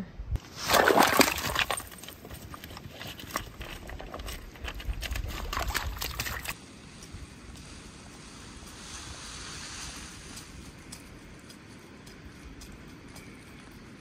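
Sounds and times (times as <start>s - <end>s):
wind rumbling on microphone: 3.2s - 14.0s.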